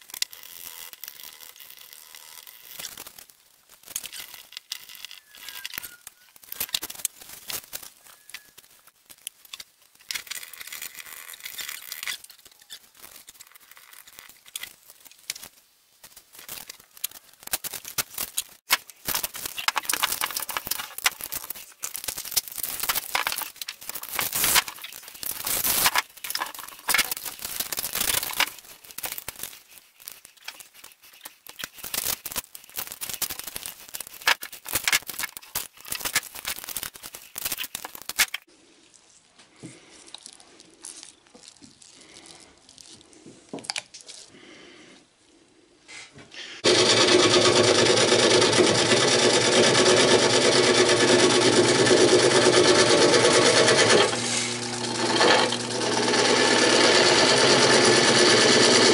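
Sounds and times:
tape ribbon crinkling and rustling: 0.0s - 44.3s.

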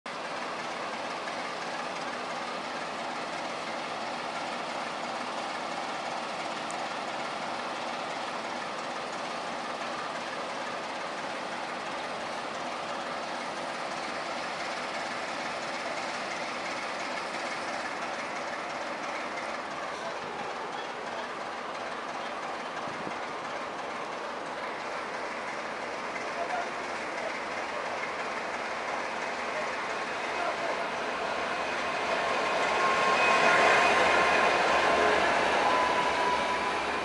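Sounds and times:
diesel locomotive engine running: 0.1s - 37.0s
faint rail noise: 0.1s - 37.0s.

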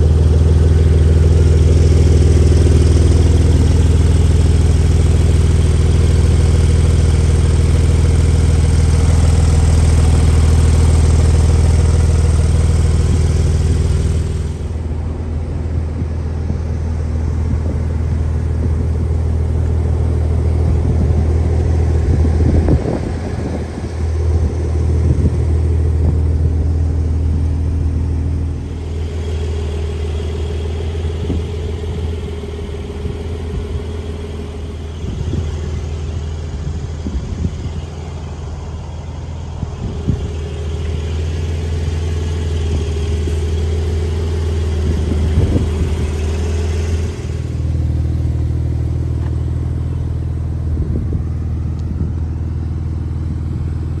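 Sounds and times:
car engine idling: 0.0s - 54.0s.

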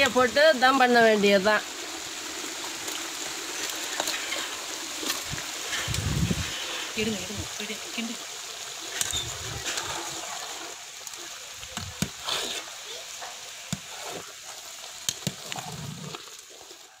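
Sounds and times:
wet stirring and sloshing: 2.6s - 7.0s, 8.7s - 17.0s.

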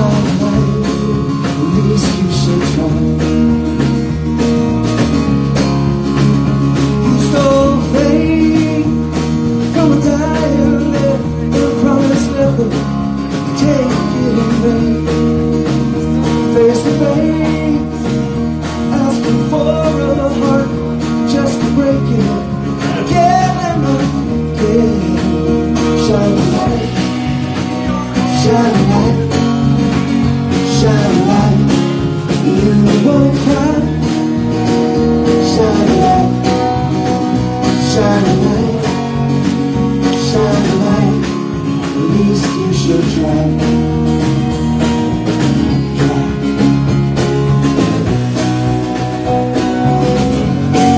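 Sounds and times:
man singing: 0.0s - 4.0s, 6.8s - 44.4s
drums: 0.0s - 50.9s
strummed acoustic guitar: 0.0s - 50.9s.

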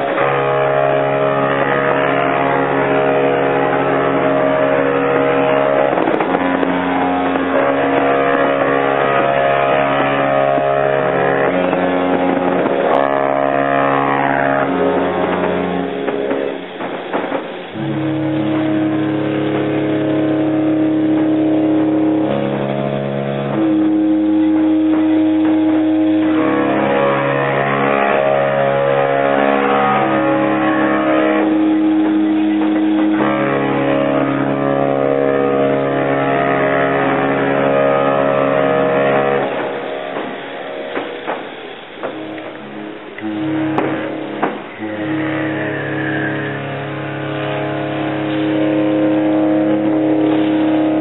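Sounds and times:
ship horns blasting: 0.0s - 51.0s.

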